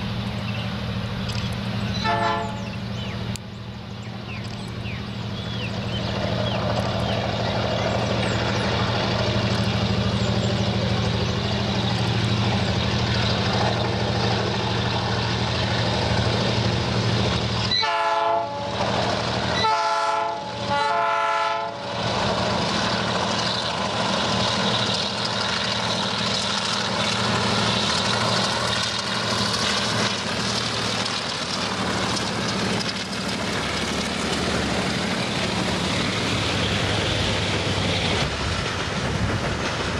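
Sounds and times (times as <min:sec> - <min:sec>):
diesel locomotive engine drone: 0:00.0 - 0:39.9
locomotive horn blasts: 0:02.0 - 0:02.7, 0:17.7 - 0:18.8, 0:19.6 - 0:22.0.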